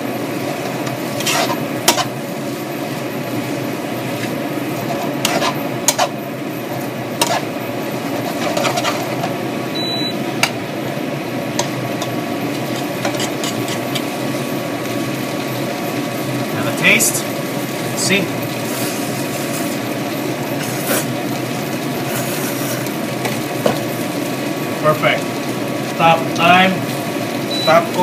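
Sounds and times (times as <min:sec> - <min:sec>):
spatula scraping frying pan: 0:00.6 - 0:02.2, 0:04.1 - 0:06.2, 0:07.2 - 0:09.4, 0:11.6 - 0:14.2, 0:18.5 - 0:19.9, 0:22.0 - 0:23.4.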